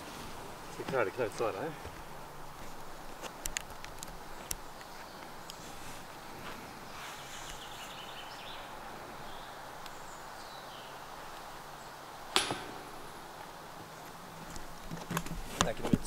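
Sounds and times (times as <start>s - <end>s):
outdoor background noise: 0.0s - 16.0s
sharp ringing knock: 12.4s - 13.9s.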